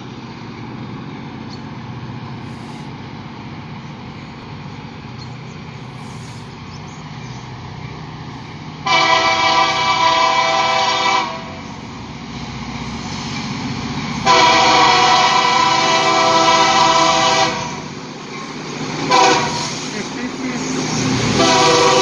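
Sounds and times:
diesel locomotive engine humming: 0.0s - 22.0s
locomotive air horn chord: 8.8s - 11.6s, 14.2s - 17.9s, 19.1s - 19.9s, 21.3s - 22.0s.

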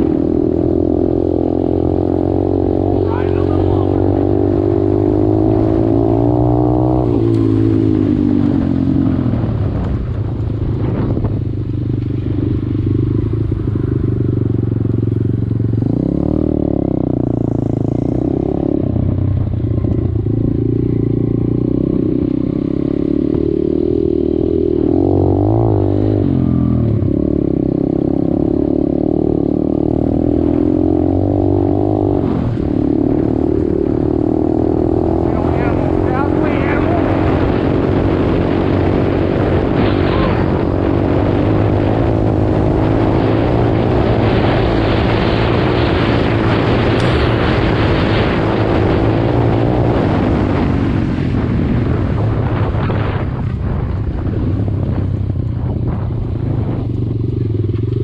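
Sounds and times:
dirt bike engine revving: 0.0s - 9.1s, 19.9s - 51.8s.

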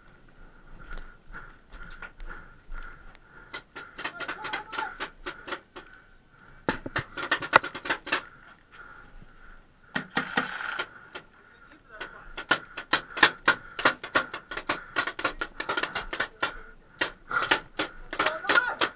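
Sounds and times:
paintball gun firing: 9.9s - 10.9s, 12.4s - 18.9s.

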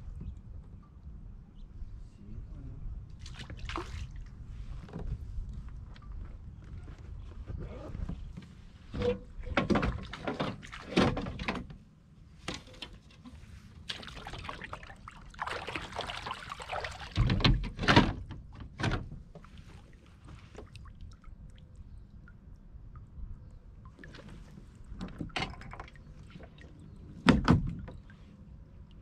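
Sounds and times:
water splashing and pouring: 13.9s - 17.5s.

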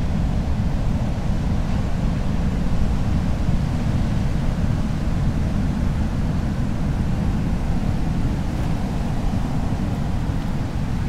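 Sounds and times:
ocean surf: 6.9s - 11.0s.

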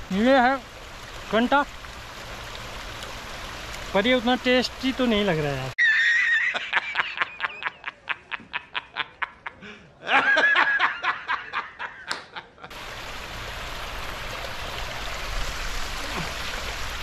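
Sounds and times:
mountain stream rushing: 0.0s - 5.8s, 12.7s - 17.0s
person laughing: 5.8s - 12.7s.

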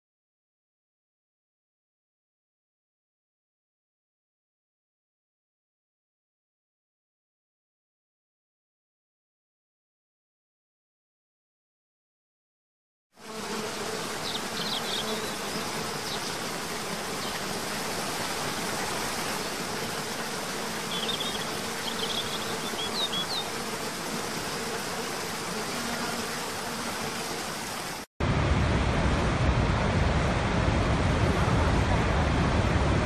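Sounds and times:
bird chirps: 14.2s - 16.4s, 20.8s - 23.6s.

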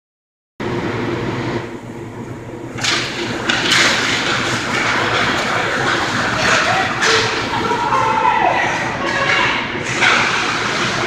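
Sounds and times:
steady low hum: 0.6s - 11.0s
skates scraping ice: 2.8s - 11.0s.

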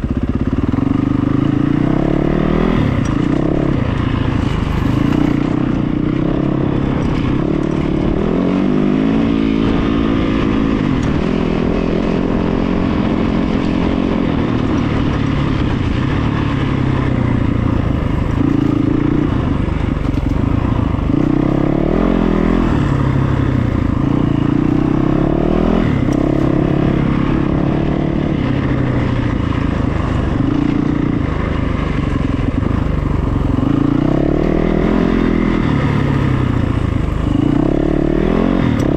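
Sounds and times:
vehicle engine revving: 0.0s - 38.9s.

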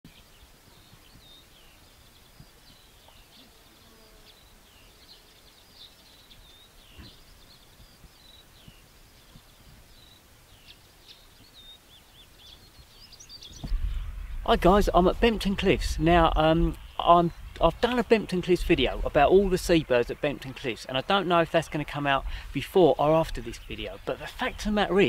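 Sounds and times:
faint songbirds twittering: 0.1s - 25.0s
low rumble: 13.6s - 17.7s.

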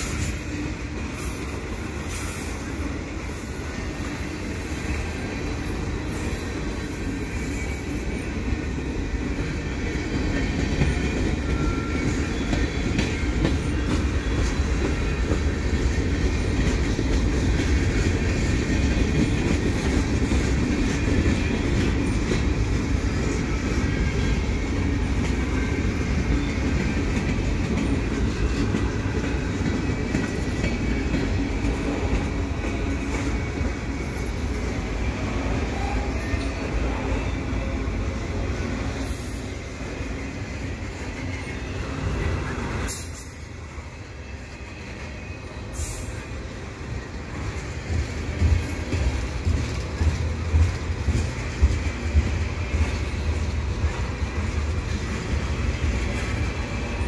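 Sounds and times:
steel wheels rumbling on rail: 0.0s - 57.0s
train cars clicking and rattling: 0.0s - 57.0s.

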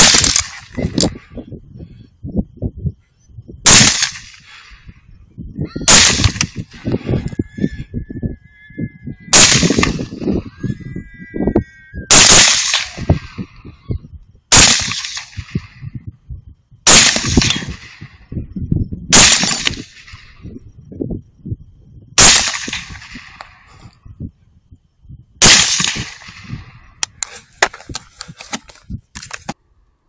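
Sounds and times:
rifle shots with ringing tail: 0.0s - 1.2s, 3.6s - 4.9s, 5.9s - 7.3s, 9.3s - 10.3s, 12.1s - 13.5s, 14.5s - 15.9s, 16.8s - 18.2s, 19.1s - 20.4s, 22.2s - 23.7s, 25.4s - 26.8s.

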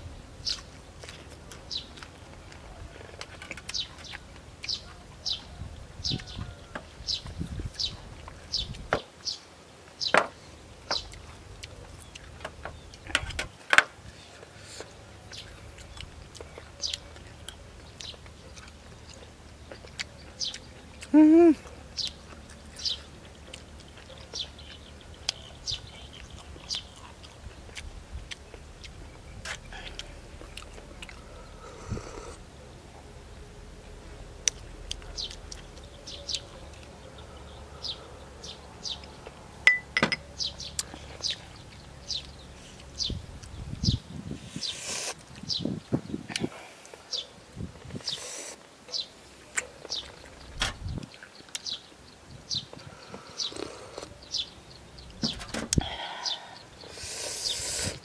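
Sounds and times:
man chewing with mouth smacks: 0.4s - 9.3s, 10.4s - 13.4s, 14.2s - 33.1s, 33.8s - 39.5s, 40.3s - 43.6s, 46.3s - 51.8s, 52.5s - 56.0s.

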